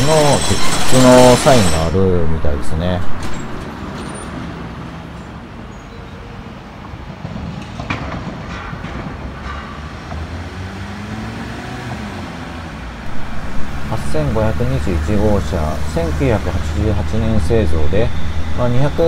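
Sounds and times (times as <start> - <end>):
city traffic noise: 0.0 - 19.0
van engine approaching: 9.2 - 19.0.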